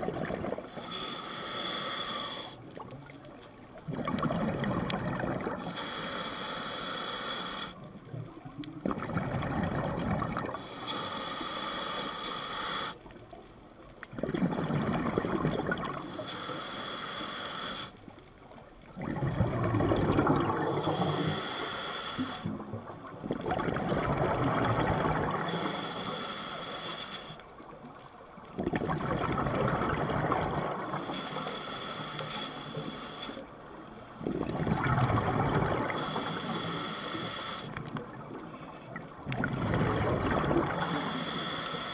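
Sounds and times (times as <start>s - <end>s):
gurgling exhaled bubbles: 0.0s - 0.8s, 3.8s - 5.7s, 8.8s - 10.6s, 14.1s - 16.1s, 18.9s - 21.2s, 22.4s - 25.6s, 28.6s - 31.1s, 34.2s - 36.4s, 37.8s - 41.1s
scuba regulator hissing inhale: 0.6s - 2.7s, 5.5s - 7.8s, 10.6s - 13.0s, 15.9s - 18.0s, 20.4s - 22.5s, 24.7s - 27.5s, 30.5s - 33.6s, 35.7s - 37.8s, 40.6s - 41.9s.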